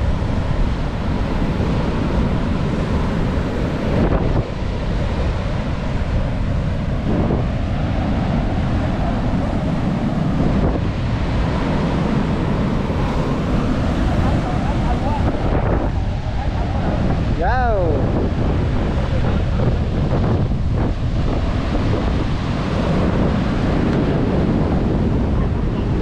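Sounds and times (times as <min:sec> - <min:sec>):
breaking surf: 0:00.0 - 0:26.0
wind buffeting microphone: 0:00.0 - 0:26.0.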